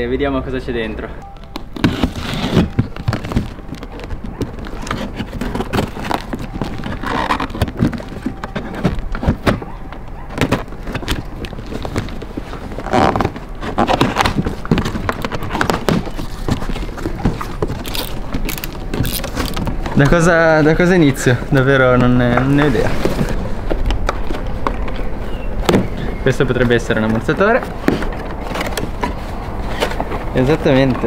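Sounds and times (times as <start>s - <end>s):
tape and flaps tearing: 1.4s - 20.7s
cardboard knocks and rustles: 1.5s - 20.3s, 21.4s - 26.1s
box cutter slicing packing tape: 1.7s - 3.3s.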